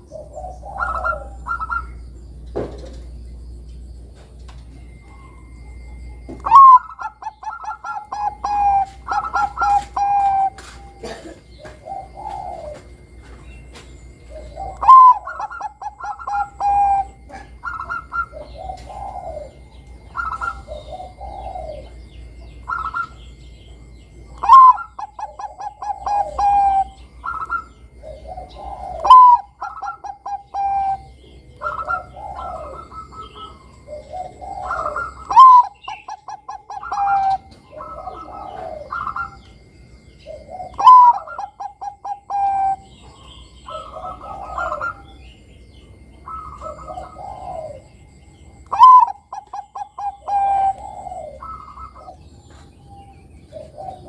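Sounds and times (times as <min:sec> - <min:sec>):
dove cooing: 0:00.0 - 0:03.3, 0:04.0 - 0:54.0.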